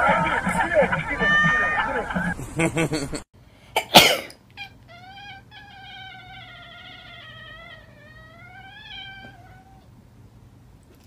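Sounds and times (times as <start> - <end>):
cat yowling: 1.2 - 1.8, 4.6 - 9.9.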